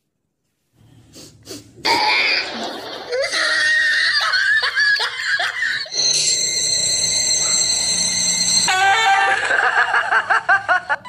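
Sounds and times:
person laughing: 2.4 - 6.0, 8.8 - 11.0
high-pitched tone: 5.9 - 9.6.

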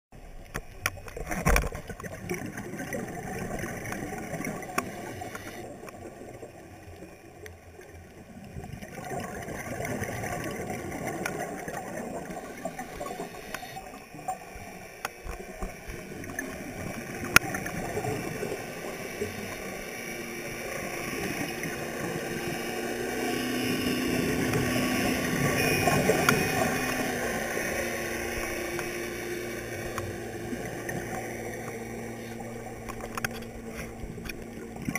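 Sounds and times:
boat engine and propeller hum: 0.2 - 34.9
regulator bubbling underwater: 0.8 - 34.9
sharp underwater clicks: 3.4 - 6.0, 24.3 - 27.6, 28.2 - 34.9.

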